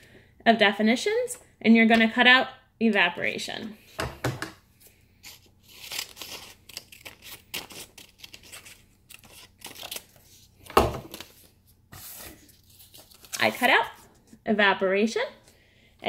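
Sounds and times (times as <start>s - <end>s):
scissors snipping paper: 5.2s - 10.1s
paper rustling: 5.2s - 14.4s.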